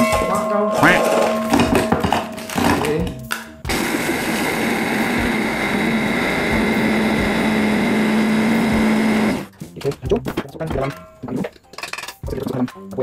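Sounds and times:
electric chopper grinding biscuits: 0:03.7 - 0:09.5.

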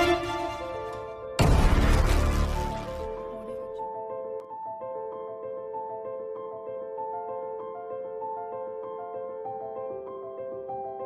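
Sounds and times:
gentle keyboard melody: 0:03.1 - 0:11.0.

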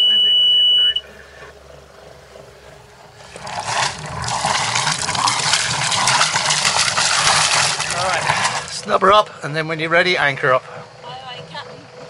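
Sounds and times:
boat engine running: 0:00.0 - 0:12.0
water gushing into sea: 0:03.2 - 0:08.8.

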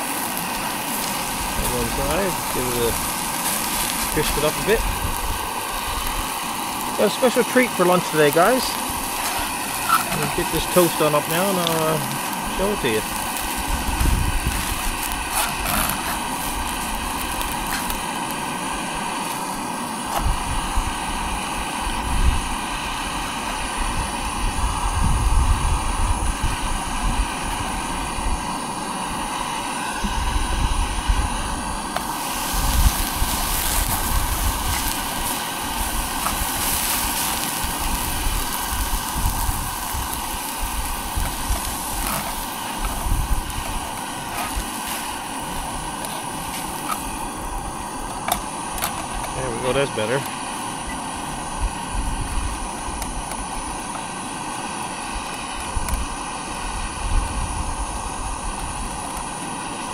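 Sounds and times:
toast frying in a pan: 0:00.0 - 0:59.9
wind rumble on microphone: 0:00.9 - 0:06.4, 0:12.0 - 0:18.0, 0:20.1 - 0:44.8, 0:51.2 - 0:53.9, 0:55.5 - 0:59.3.

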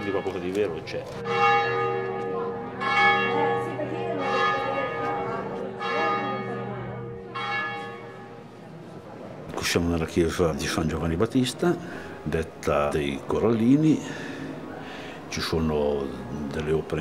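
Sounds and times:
church bell tolling: 0:00.0 - 0:08.5.

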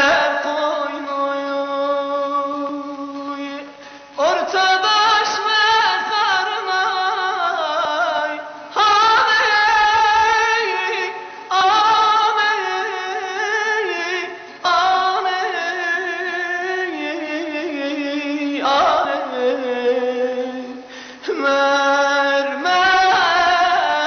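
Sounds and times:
singer breathing: 0:03.7 - 0:04.2, 0:11.2 - 0:11.5, 0:20.8 - 0:21.3.

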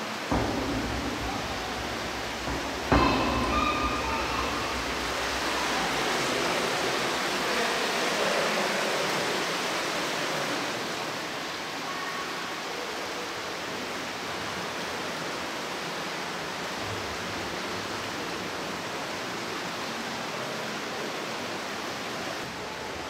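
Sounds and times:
flowing water rushing: 0:00.0 - 0:23.0
sudden knock: 0:00.3 - 0:07.5.

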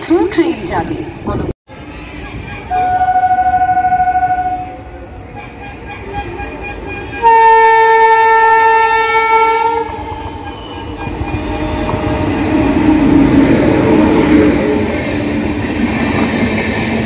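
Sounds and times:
oncoming train rumble: 0:00.0 - 0:17.0
locomotive horn blasts: 0:02.2 - 0:13.1.

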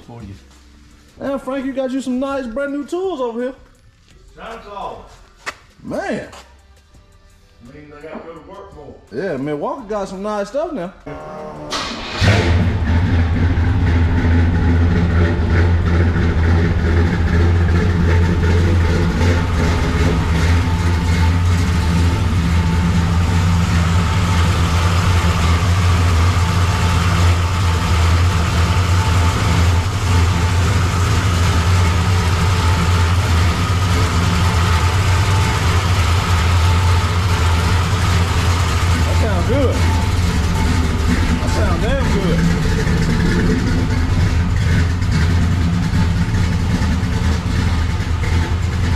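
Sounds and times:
engine idling: 0:11.1 - 0:48.9.

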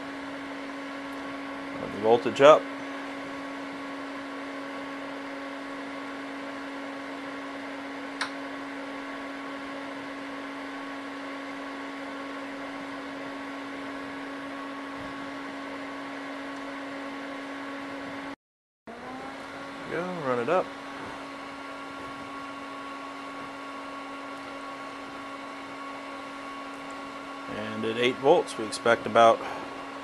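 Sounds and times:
cooling fan humming: 0:00.0 - 0:30.0.

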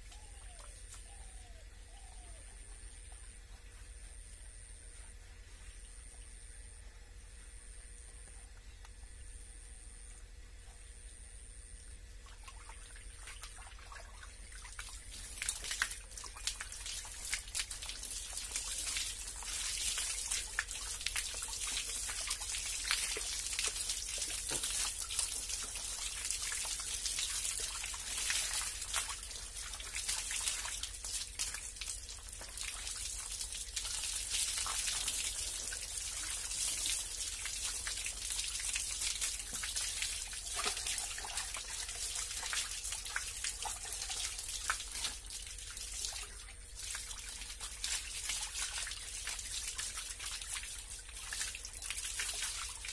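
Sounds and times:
hose water splashing on concrete: 0:12.3 - 0:52.9.

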